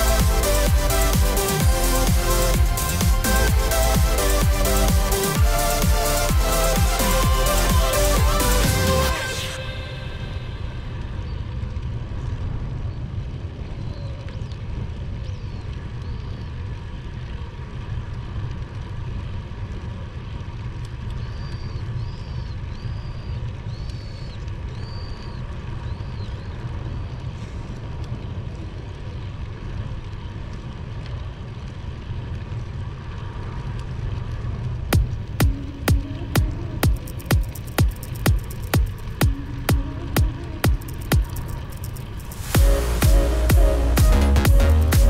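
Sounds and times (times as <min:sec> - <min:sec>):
wind rumbling on microphone: 0:10.5 - 0:36.8.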